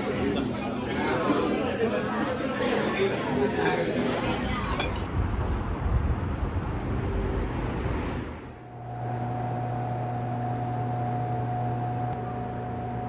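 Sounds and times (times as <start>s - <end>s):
machine hum with mid-pitched tone: 8.5s - 13.0s.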